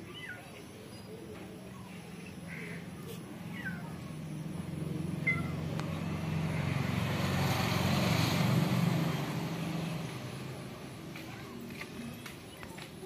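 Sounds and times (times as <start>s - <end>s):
engine passing by: 2.0s - 13.0s.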